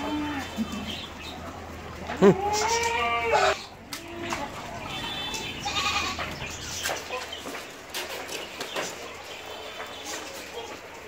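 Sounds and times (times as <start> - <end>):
goats bleating: 0.0 - 0.9, 2.1 - 6.5
knocks and shuffling: 3.7 - 11.0.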